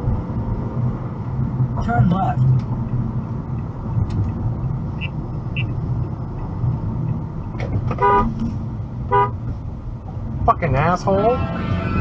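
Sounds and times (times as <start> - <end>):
car road and engine noise: 0.0 - 12.0
car horn blast: 8.0 - 8.3, 9.1 - 9.4, 11.2 - 12.0.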